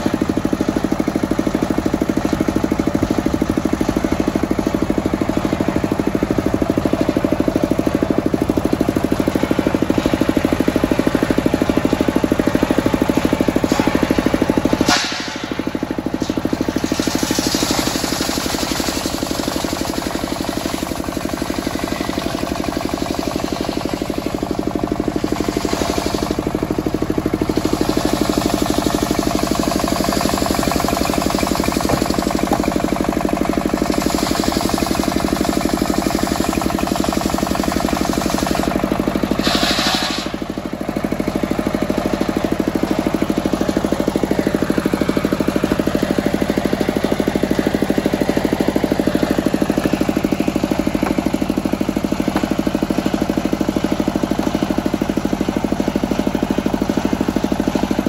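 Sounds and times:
diesel engine running: 0.0 - 58.0
saw blade cutting hiss: 39.4 - 40.4.

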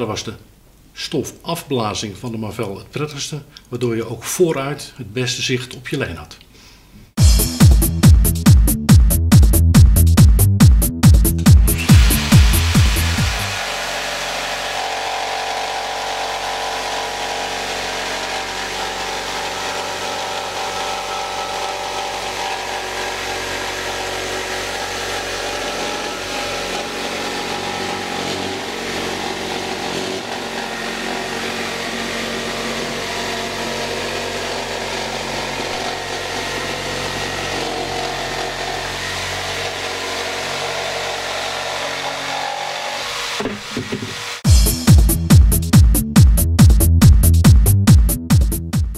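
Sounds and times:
jigsaw sawing wood: 11.4 - 44.6.

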